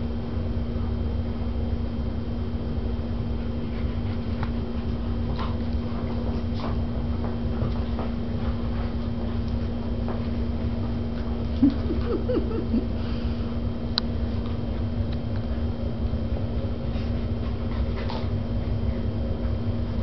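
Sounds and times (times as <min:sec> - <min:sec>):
steady low hum: 0:00.0 - 0:20.0
dogs scuffling: 0:03.7 - 0:12.4.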